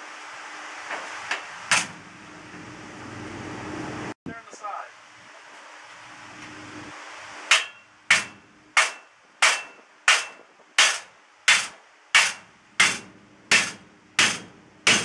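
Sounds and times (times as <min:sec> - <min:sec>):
hammer striking metal: 0:07.5 - 0:15.0.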